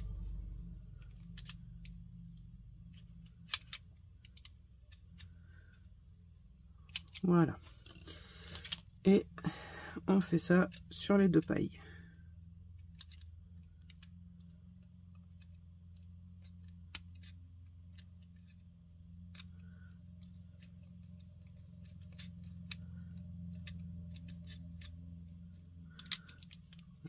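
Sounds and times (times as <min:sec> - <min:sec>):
steady low hum: 0:00.0 - 0:27.0
scissors snipping: 0:19.2 - 0:27.0.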